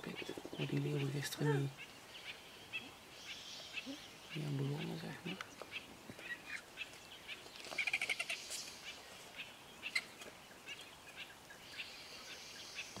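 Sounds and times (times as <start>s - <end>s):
animals squealing and cackling: 7.7s - 9.0s.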